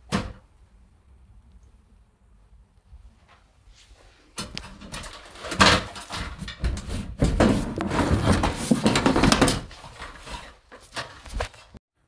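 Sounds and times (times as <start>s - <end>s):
plastic tank scraping and knocking: 4.4s - 11.6s.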